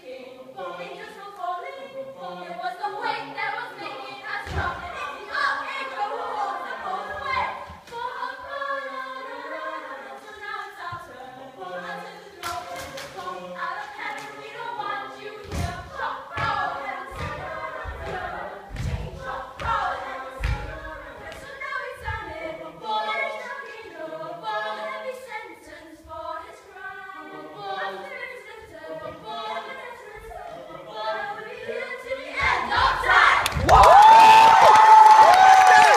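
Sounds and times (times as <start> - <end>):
group of voices singing: 0.0 - 35.9
low thumps: 15.4 - 22.6.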